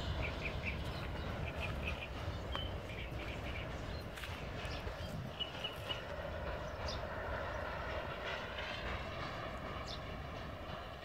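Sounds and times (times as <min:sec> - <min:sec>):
bird chirps: 0:00.0 - 0:07.1
freight train rumble: 0:00.0 - 0:11.0.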